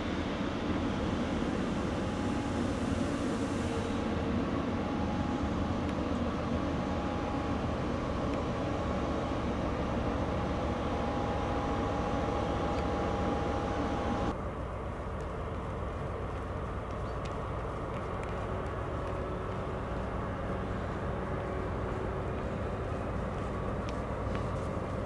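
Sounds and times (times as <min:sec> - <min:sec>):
high whine: 0:00.0 - 0:14.3
diesel locomotive engine drone: 0:00.0 - 0:25.0.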